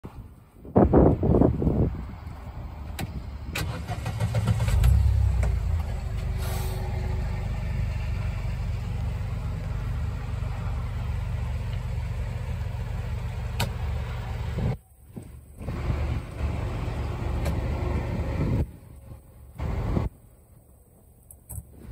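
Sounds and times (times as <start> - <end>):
engine cranking and idling: 2.9 - 20.2.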